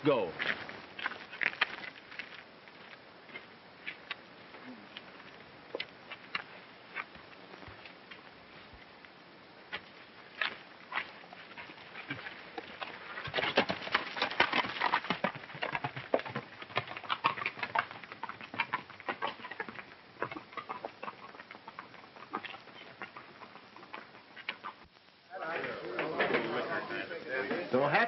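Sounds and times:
horses' hooves clattering: 0:09.7 - 0:28.0.

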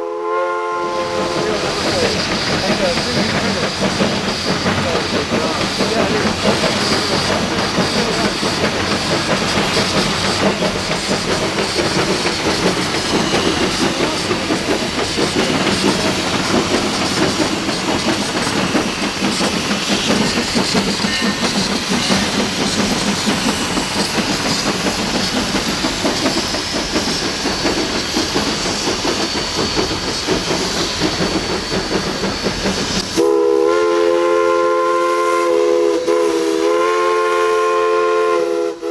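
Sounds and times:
steam whistle blowing: 0:00.0 - 0:01.6, 0:33.1 - 0:38.9
steam locomotive running: 0:00.0 - 0:38.9.

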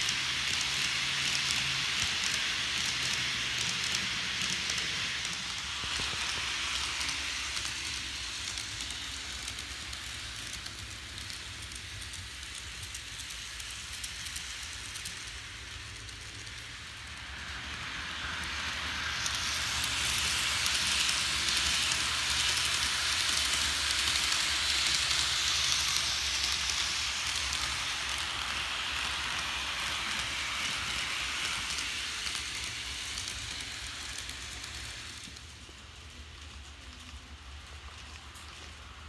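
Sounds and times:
model train rattling on track: 0:00.0 - 0:39.0.

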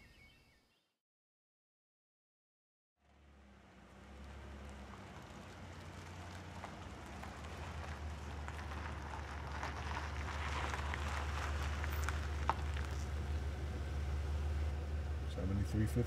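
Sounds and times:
car engine hum: 0:03.0 - 0:16.0
tyres crunching on gravel: 0:03.9 - 0:14.2.

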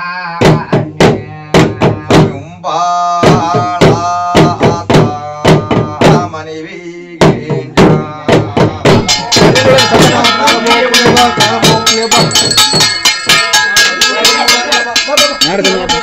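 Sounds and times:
fast percussion: 0:00.4 - 0:02.5, 0:03.2 - 0:06.4, 0:07.2 - 0:16.0
bright metallic ringing: 0:09.0 - 0:16.0.

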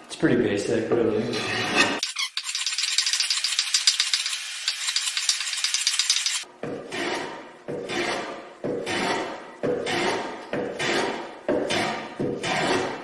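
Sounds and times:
rapid high rattling: 0:02.0 - 0:06.4
hand plane scraping wood: 0:10.8 - 0:13.0.

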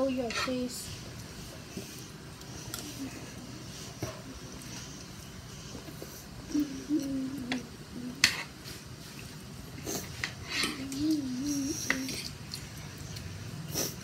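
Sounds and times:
cutlery scraping a plate: 0:00.2 - 0:00.6, 0:08.2 - 0:08.6, 0:10.0 - 0:10.9.

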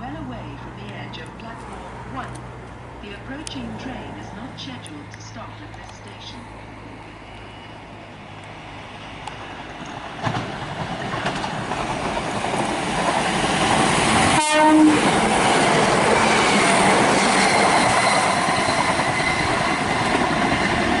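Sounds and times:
train passing at speed: 0:00.0 - 0:21.0
wheels clattering over rails: 0:09.8 - 0:14.4
train horn note: 0:14.2 - 0:15.2.

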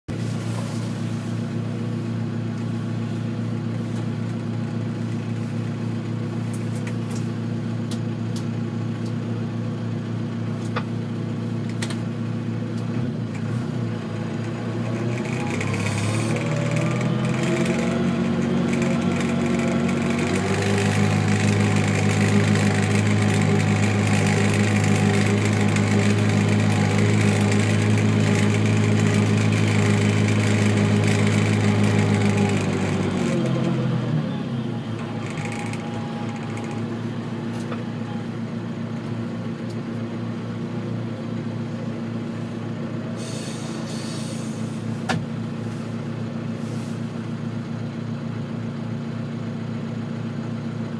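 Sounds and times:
tractor diesel engine running: 0:00.0 - 0:50.9.

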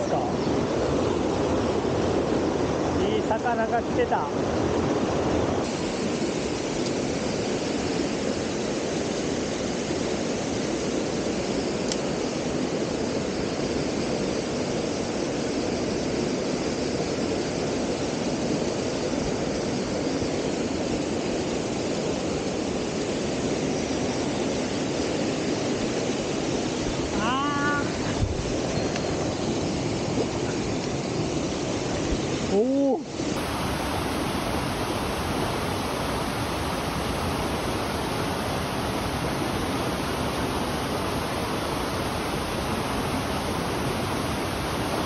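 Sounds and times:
stream rapids: 0:00.0 - 0:45.0
waterfall rushing: 0:26.6 - 0:45.0.

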